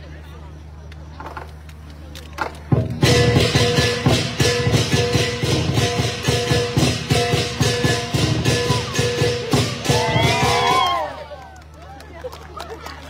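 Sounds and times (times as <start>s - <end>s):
big drum beating fast: 2.7s - 11.1s
crashing cymbals: 3.0s - 11.1s
ringing gong: 3.1s - 10.1s.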